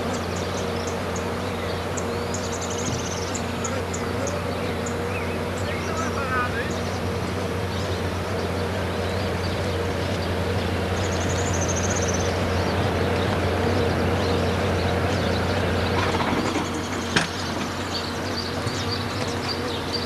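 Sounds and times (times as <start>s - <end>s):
vehicle engine idling: 0.0s - 20.0s.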